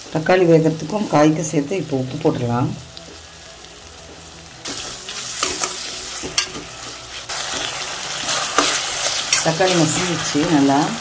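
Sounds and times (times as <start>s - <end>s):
vegetables sizzling in oil: 0.0s - 11.0s
spoon scraping and stirring: 4.7s - 10.3s.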